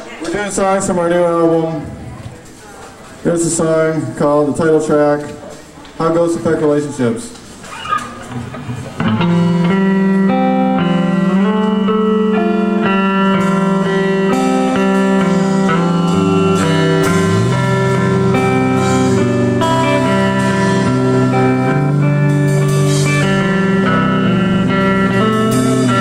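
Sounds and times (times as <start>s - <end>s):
ringing guitar notes: 8.6s - 26.0s.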